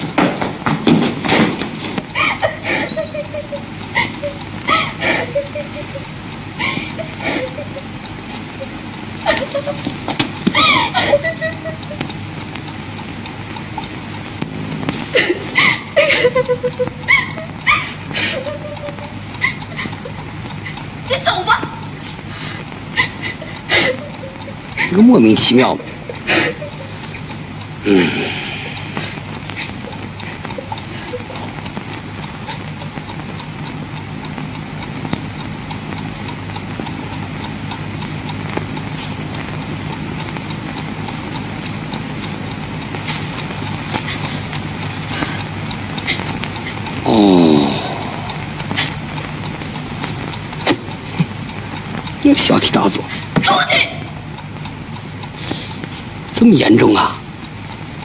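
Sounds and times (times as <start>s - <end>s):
faint crackling ticks: 0.0s - 58.0s
old film soundtrack hiss: 0.0s - 58.0s
whining cries: 2.2s - 7.7s, 10.5s - 12.1s, 15.1s - 20.8s.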